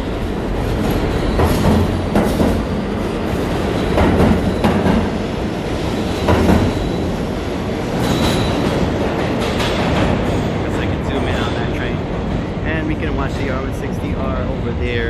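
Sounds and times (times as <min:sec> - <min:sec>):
subway train rumbling past: 0:00.0 - 0:15.0
wheel clacks over rail joints: 0:03.6 - 0:05.2, 0:06.0 - 0:07.3.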